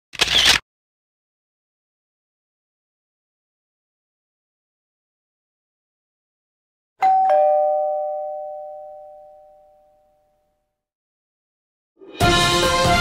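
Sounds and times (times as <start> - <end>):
two-note doorbell chime: 7.0 - 10.6
loud music: 12.0 - 13.0.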